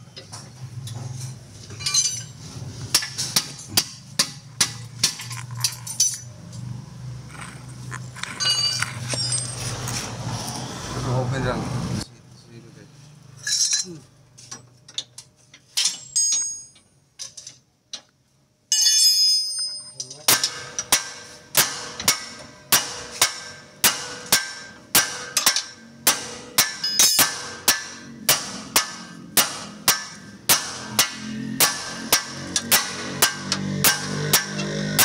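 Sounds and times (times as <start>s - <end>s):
metal tools clinking: 1.1s - 2.4s, 5.0s - 6.7s, 7.3s - 10.0s, 13.4s - 17.6s, 18.7s - 20.9s, 26.8s - 27.2s
hammer striking metal: 2.9s - 6.2s, 18.7s - 35.0s.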